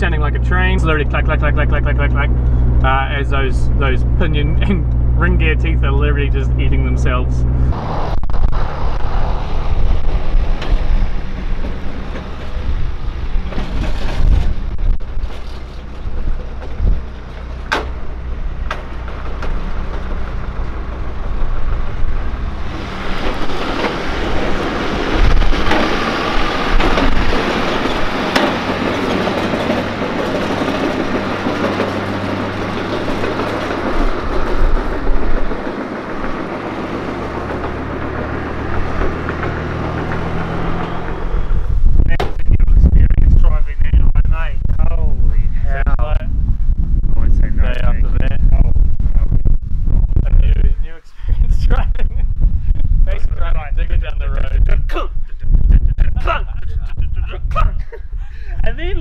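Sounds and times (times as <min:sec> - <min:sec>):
vehicle engine running: 0:00.0 - 0:59.0
differential gear clacking: 0:10.0 - 0:42.4
sharp knocks: 0:16.1 - 0:41.3.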